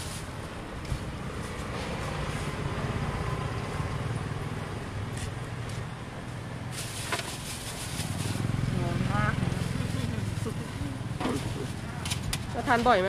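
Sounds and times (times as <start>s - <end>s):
vehicle engine droning: 7.5s - 12.5s.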